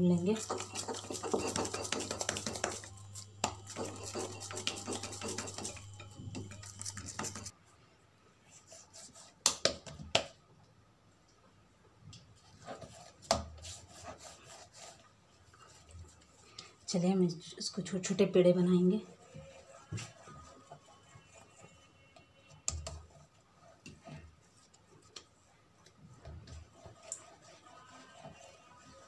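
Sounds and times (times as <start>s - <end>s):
hands kneading dough: 0.0s - 7.5s.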